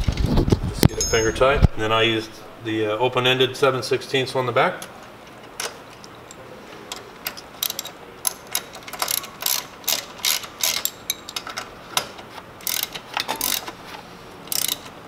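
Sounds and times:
socket ratchet clicking: 7.3 - 11.4, 12.6 - 13.7, 14.5 - 14.9.

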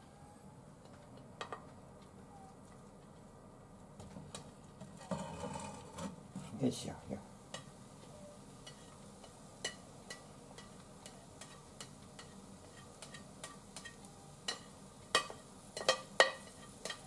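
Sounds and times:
spatula scraping and tapping: 7.5 - 17.0.

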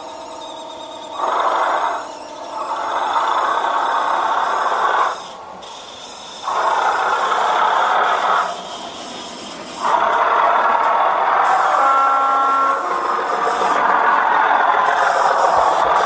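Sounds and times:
model diesel engine sound: 0.0 - 16.0
model locomotive horn sounds: 11.3 - 14.0.

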